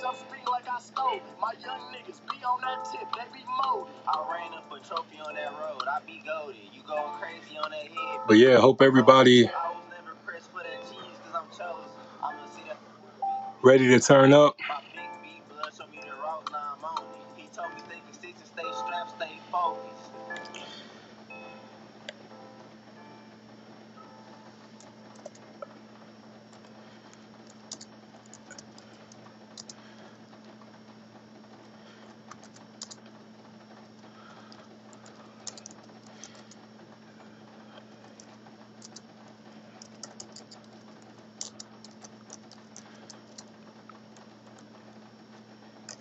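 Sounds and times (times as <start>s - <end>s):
steady low hum: 0.0s - 46.0s
keyboard typing clicks: 20.3s - 20.7s, 24.8s - 25.5s, 27.4s - 29.8s, 32.2s - 33.0s, 34.9s - 36.6s, 38.8s - 39.0s, 39.8s - 40.8s, 41.4s - 43.5s.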